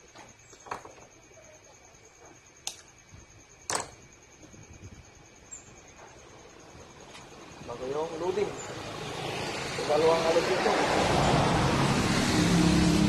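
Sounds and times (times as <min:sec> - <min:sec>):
faint high whine: 0:00.0 - 0:09.1.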